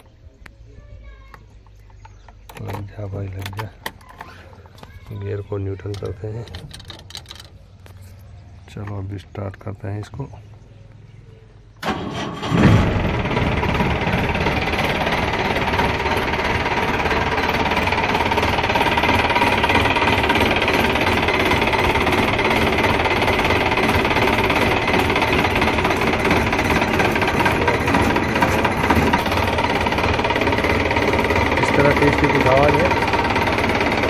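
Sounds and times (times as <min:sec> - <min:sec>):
diesel engine cranking: 0:01.3 - 0:09.6, 0:11.8 - 0:34.0
diesel engine idling: 0:11.8 - 0:34.0.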